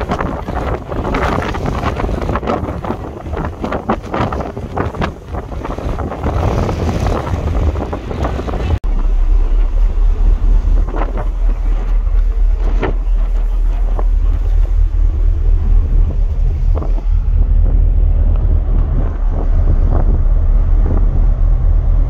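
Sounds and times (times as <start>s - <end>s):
deep steady wind rumble: 0.0s - 22.0s
strong wind buffeting microphone: 0.0s - 22.0s.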